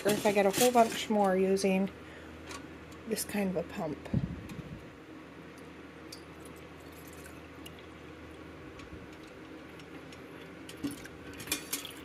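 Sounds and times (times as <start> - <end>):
milk trickling into jar: 6.8 - 7.9.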